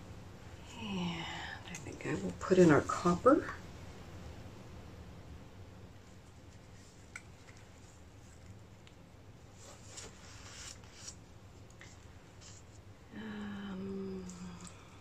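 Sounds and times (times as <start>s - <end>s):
low room hum: 0.0s - 15.0s
soft rustles and scrapes: 6.0s - 12.9s.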